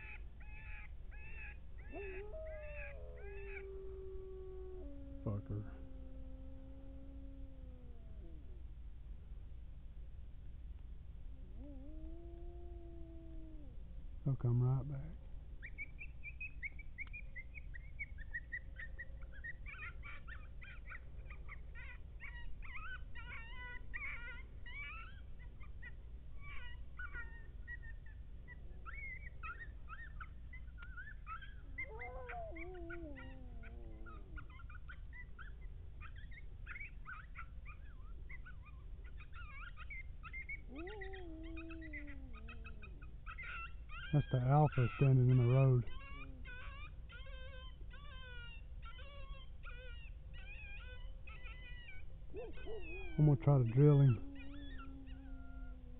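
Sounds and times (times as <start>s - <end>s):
coyotes yipping: 0.0s - 6.9s, 11.5s - 55.9s
coyote howls: 0.0s - 8.6s, 11.4s - 55.9s.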